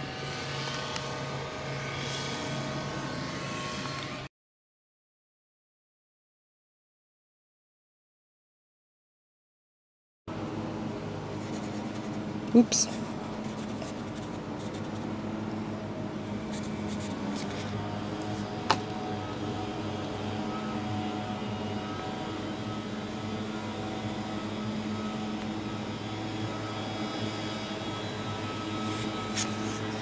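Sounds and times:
mechanical hum: 0.0s - 4.3s, 10.3s - 30.0s.

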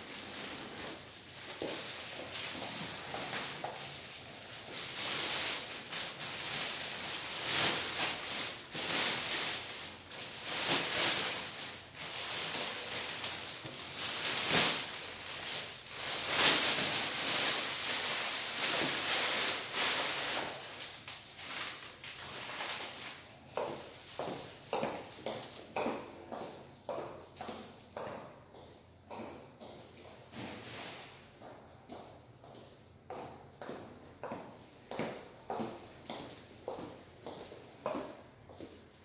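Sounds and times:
plastic bag crinkling and rustling: 0.0s - 27.9s.

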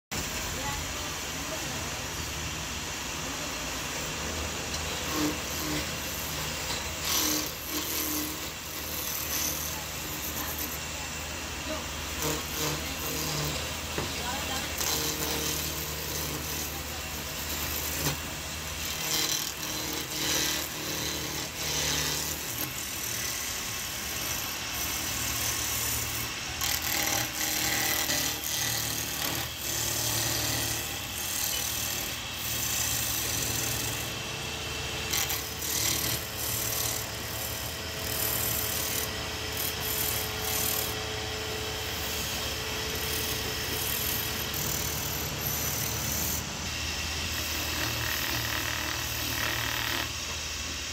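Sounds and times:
chisel scraping turning wood: 4.7s - 10.9s, 12.1s - 23.4s, 26.1s - 32.7s, 35.1s - 41.0s.

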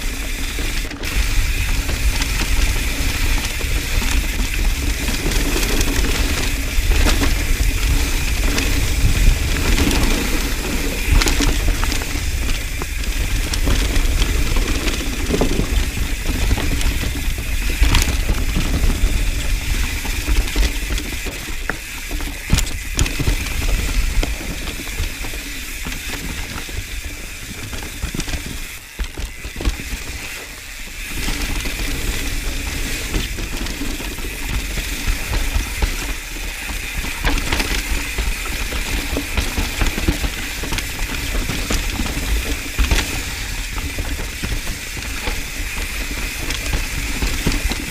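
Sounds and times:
bike knocks and rattles: 0.0s - 47.9s
bike tyre noise on dirt: 0.0s - 47.9s
freehub ratcheting buzz: 0.0s - 47.9s
wind rumble on microphone: 0.0s - 47.9s.

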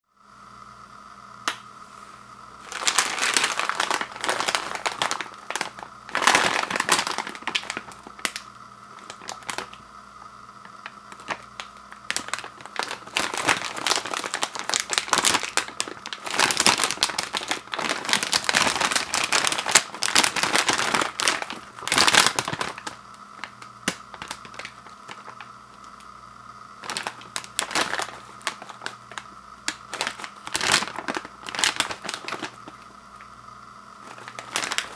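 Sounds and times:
plastic chip bag crinkling: 2.6s - 34.9s.

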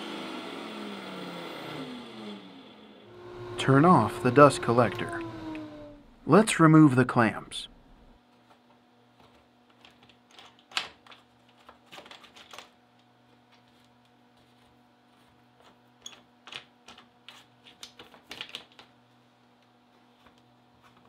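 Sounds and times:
faint low hum: 3.1s - 8.2s.

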